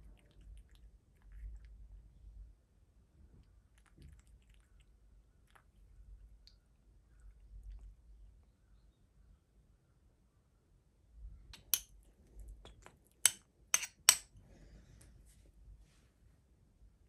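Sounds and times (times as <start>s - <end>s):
metal spoon clinking ceramic bowl: 13.2s - 14.3s.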